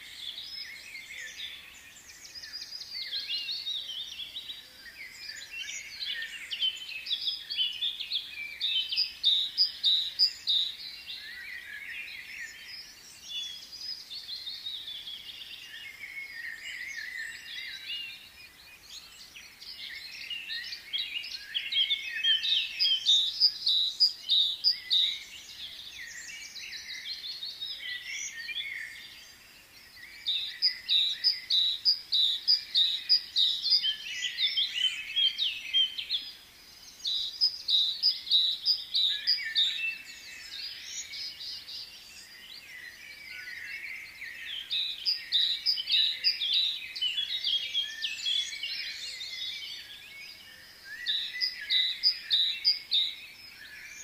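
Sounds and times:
small birds chirping and twittering: 0:00.0 - 0:54.0.

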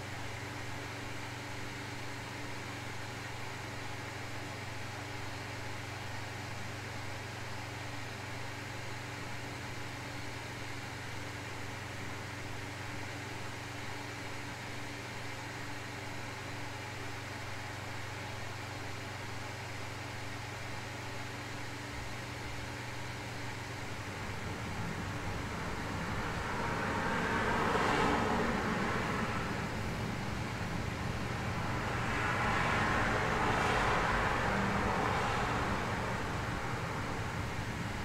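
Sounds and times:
even white noise hiss: 0:00.0 - 0:38.0
low constant hum: 0:00.0 - 0:38.0
car outside: 0:22.0 - 0:38.0.

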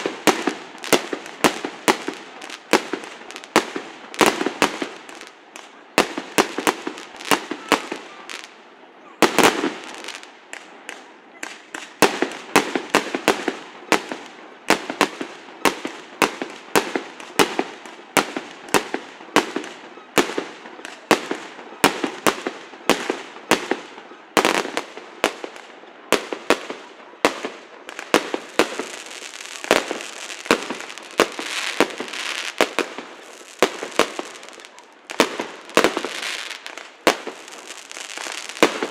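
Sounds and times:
fireworks bangs: 0:00.0 - 0:08.6, 0:09.2 - 0:38.9
fireworks crackling: 0:00.0 - 0:08.6, 0:09.2 - 0:38.9.

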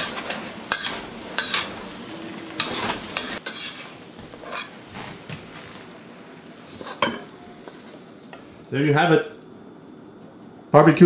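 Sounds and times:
spatula scraping a wok: 0:00.0 - 0:05.2, 0:06.7 - 0:08.2
food sizzling: 0:00.0 - 0:10.3.

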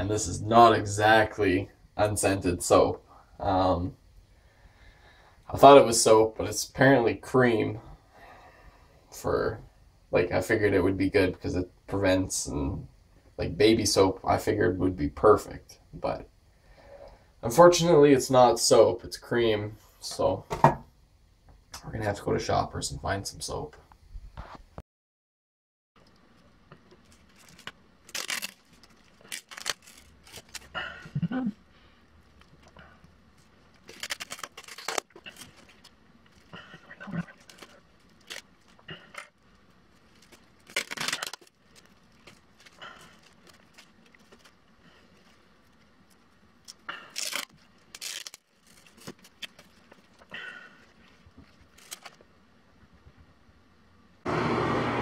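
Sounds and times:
bandage peeling off skin: 0:26.9 - 0:30.8, 0:32.2 - 0:52.3.

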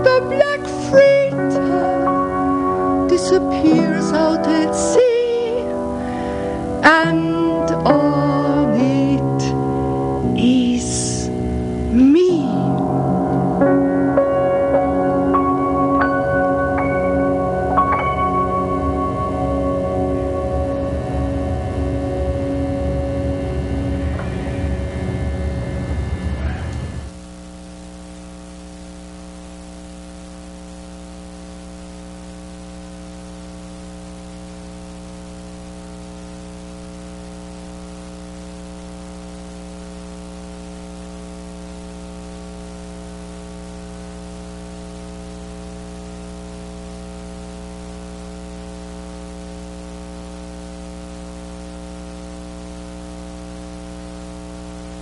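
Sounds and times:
loud performance sound: 0:00.0 - 0:27.1
electrical mains hum: 0:00.0 - 0:55.0.

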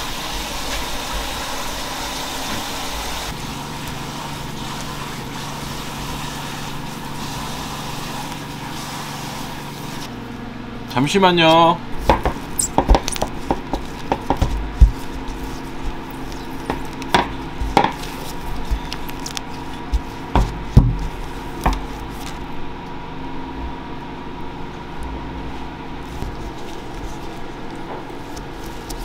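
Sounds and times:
steady hum: 0:10.0 - 0:29.0
rolling pin knocking on counter: 0:12.0 - 0:15.2, 0:16.7 - 0:18.0, 0:19.9 - 0:21.9.

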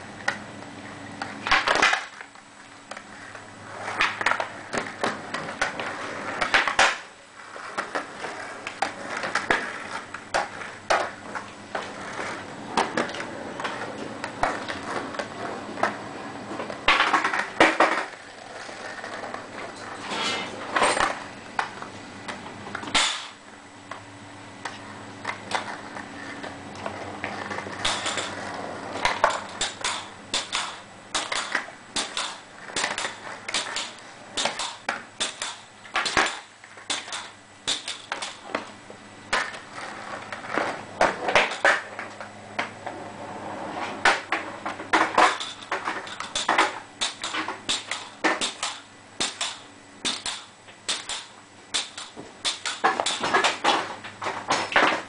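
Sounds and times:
steady low hum: 0:00.0 - 0:55.0
pogo stick clacking on concrete: 0:01.4 - 0:02.3, 0:16.9 - 0:18.2, 0:22.8 - 0:23.4, 0:26.4 - 0:28.4, 0:29.0 - 0:38.7, 0:39.3 - 0:42.8, 0:44.0 - 0:55.0.

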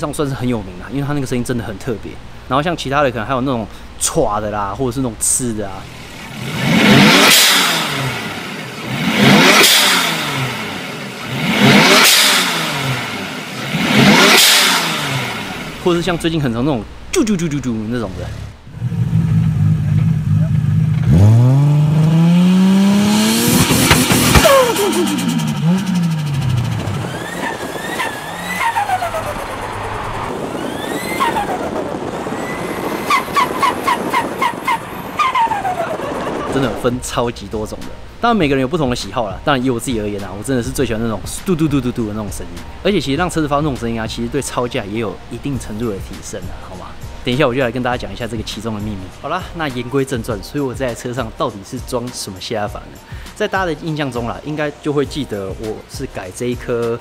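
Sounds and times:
engine revving: 0:06.0 - 0:16.2, 0:18.0 - 0:38.4
turbo whistle: 0:32.3 - 0:35.8.

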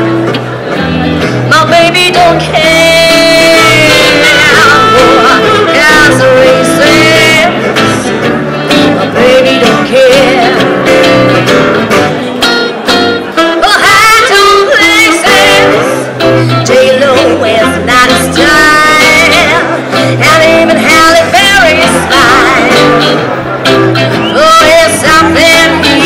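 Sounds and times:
live band playing swing: 0:00.0 - 0:26.0
woman singing: 0:01.5 - 0:07.7, 0:09.1 - 0:10.8, 0:13.4 - 0:23.2, 0:24.2 - 0:26.0.

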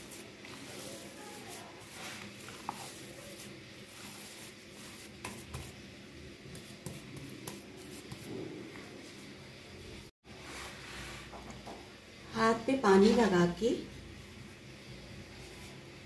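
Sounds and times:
wet squishing of kneaded mixture: 0:00.0 - 0:09.4.

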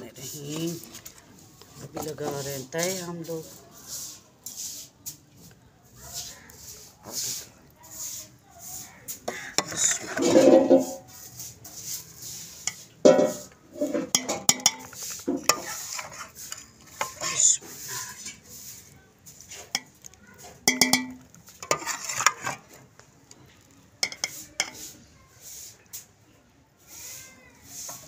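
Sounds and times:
metal spoon scraping steel pots: 0:06.2 - 0:23.0, 0:23.6 - 0:25.8, 0:27.8 - 0:28.0.

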